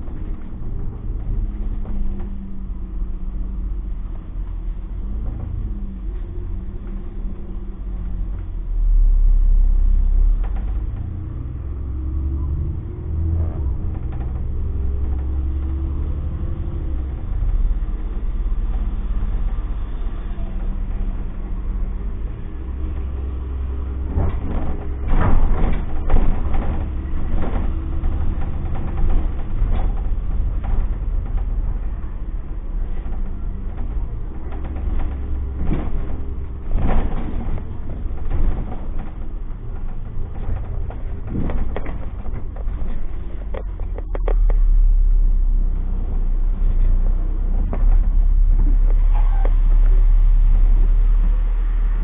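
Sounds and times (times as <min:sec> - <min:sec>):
bus engine and road rumble: 0:00.0 - 0:52.0
knocks and rattles: 0:13.2 - 0:19.8, 0:22.5 - 0:44.7.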